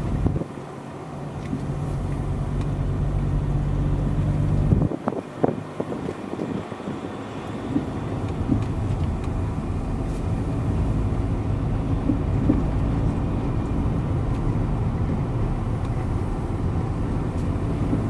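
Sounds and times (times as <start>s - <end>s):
car interior road rumble: 0.0s - 18.0s.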